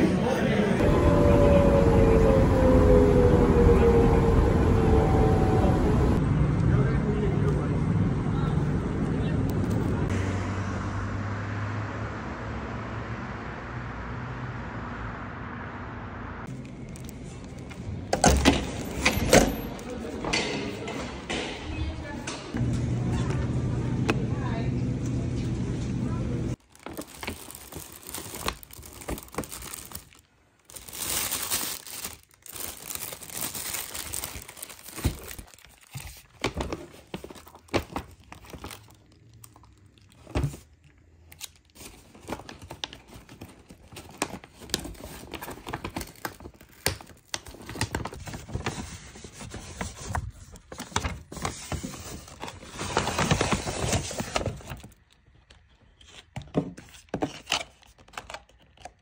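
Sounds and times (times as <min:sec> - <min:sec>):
bags rustling and crinkling: 0:26.5 - 0:40.9, 0:41.5 - 0:55.1.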